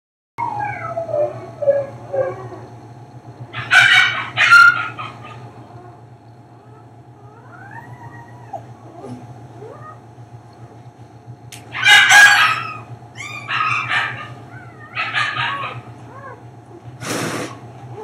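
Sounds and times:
dog whimpering and crying: 0.4 - 2.7, 6.6 - 10.1, 11.8 - 16.8
steady low hum: 0.4 - 18.0.

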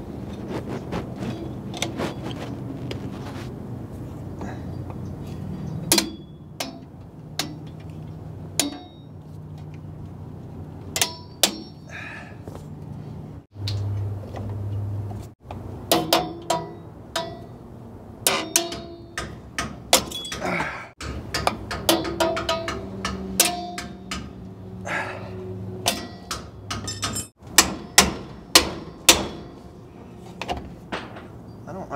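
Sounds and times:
metal tools clinking: 20.0 - 24.4, 25.8 - 30.2.

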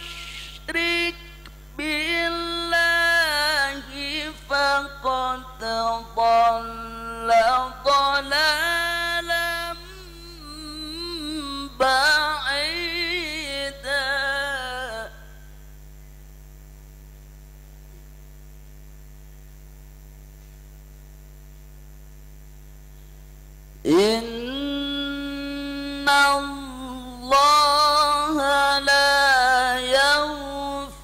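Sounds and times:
person chanting recitation: 0.0 - 15.4, 23.8 - 31.0
electrical mains hum: 0.0 - 31.0.

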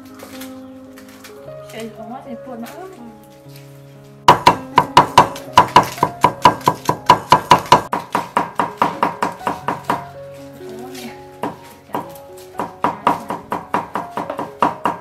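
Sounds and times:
background music: 0.0 - 15.0.

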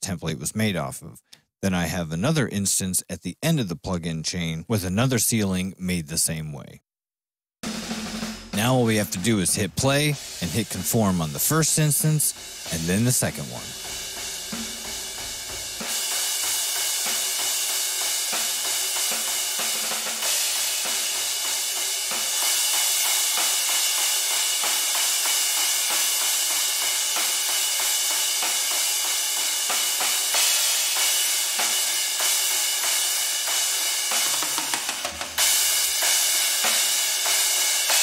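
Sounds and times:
cymbals and hi-hats: 7.6 - 38.0.

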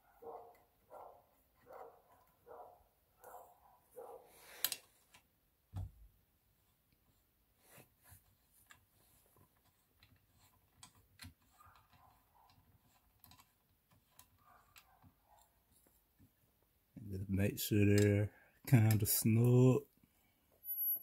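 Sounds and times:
allen key clicking on screws: 10.0 - 15.5.

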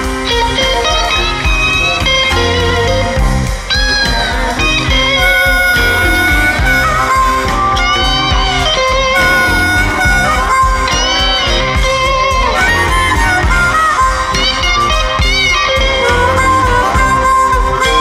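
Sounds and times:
electric blues band: 0.0 - 18.0
electric guitar lead: 0.0 - 18.0
harmonica: 0.0 - 18.0.

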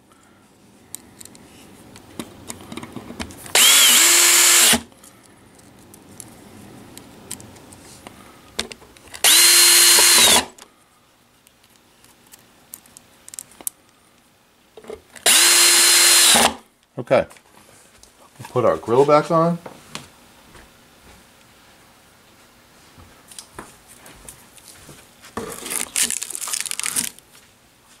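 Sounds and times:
cordless drill driving screws: 3.5 - 4.9, 9.2 - 10.6, 15.2 - 16.6.

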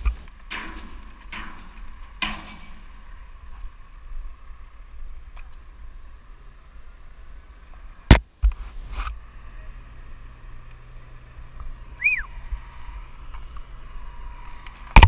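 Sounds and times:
faint steady hum: 0.0 - 15.0
short rising and falling chirp: 11.9 - 12.4.

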